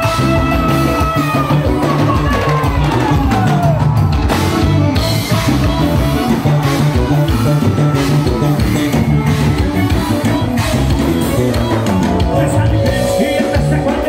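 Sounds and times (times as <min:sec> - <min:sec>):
drum kit steady beat: 0:00.0 - 0:14.0
live band playing: 0:00.0 - 0:14.0
lead note sliding down: 0:12.0 - 0:14.0.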